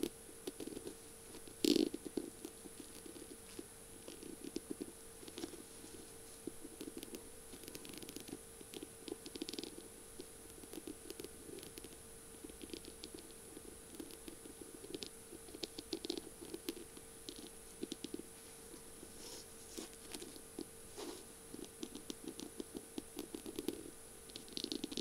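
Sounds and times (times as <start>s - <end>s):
faint steady hum: 0.0s - 25.0s.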